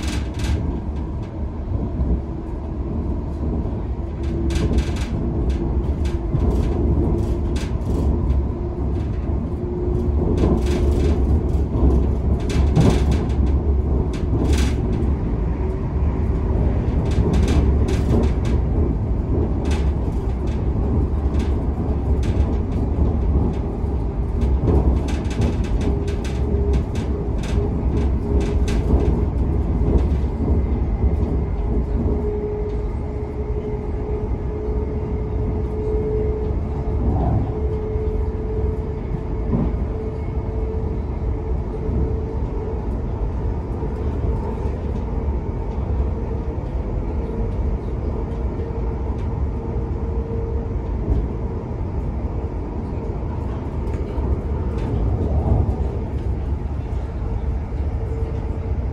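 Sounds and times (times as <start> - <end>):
train wheels rumbling on rail: 0.0 - 58.9.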